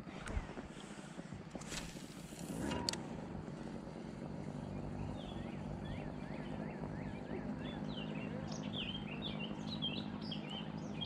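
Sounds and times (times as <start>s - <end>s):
steady low rumble: 0.0s - 11.0s
songbirds singing: 4.2s - 11.0s.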